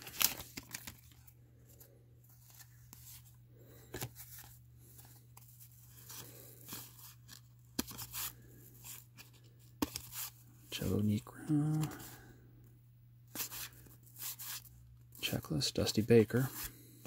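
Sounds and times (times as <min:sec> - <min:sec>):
cards sliding and rustling: 0:00.0 - 0:10.6, 0:11.5 - 0:12.2, 0:13.3 - 0:14.8, 0:16.2 - 0:17.0.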